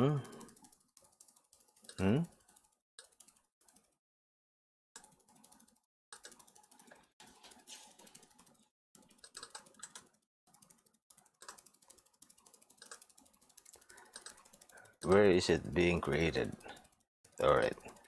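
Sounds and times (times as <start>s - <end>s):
mouse and keyboard clicking: 5.0s - 7.0s, 8.0s - 15.4s.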